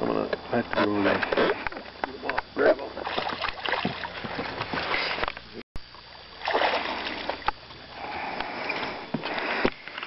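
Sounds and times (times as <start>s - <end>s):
fish thrashing and splashing: 3.0s - 5.3s, 6.4s - 7.6s
landing net dipped into water: 6.4s - 7.5s.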